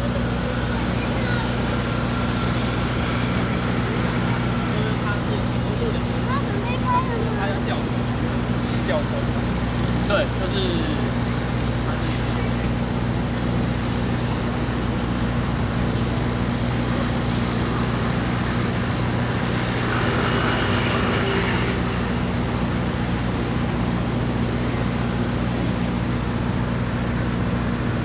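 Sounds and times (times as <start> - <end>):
road traffic noise: 0.0 - 28.0
tractor engine idling: 0.0 - 28.0.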